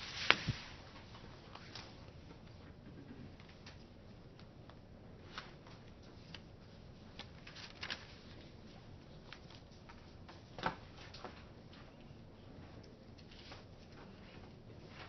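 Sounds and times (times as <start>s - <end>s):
paper rustling: 0.0s - 2.1s, 5.2s - 11.4s.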